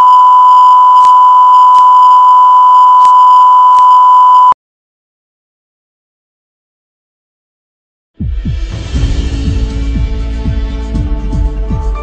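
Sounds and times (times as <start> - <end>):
steady electronic beep tone: 0.0 - 4.6.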